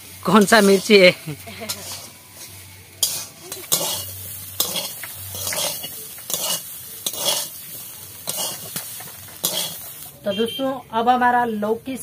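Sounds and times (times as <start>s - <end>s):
greens sizzling in oil: 0.0s - 12.0s
metal spatula scraping pan: 0.3s - 1.0s, 1.6s - 10.0s.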